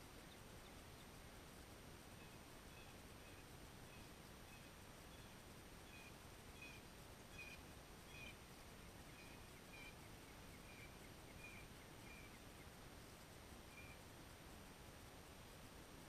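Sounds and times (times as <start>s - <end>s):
bird chirping faintly: 0.1s - 14.1s.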